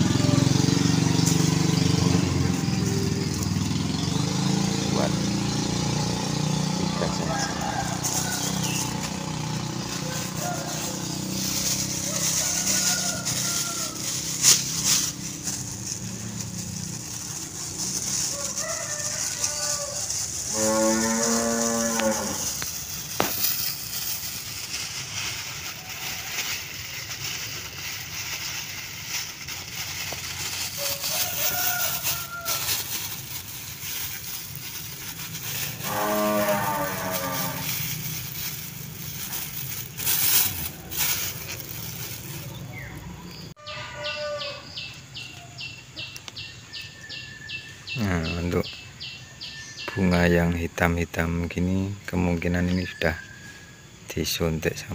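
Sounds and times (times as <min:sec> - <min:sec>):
cow mooing: 0:20.5 - 0:22.6, 0:35.6 - 0:37.9.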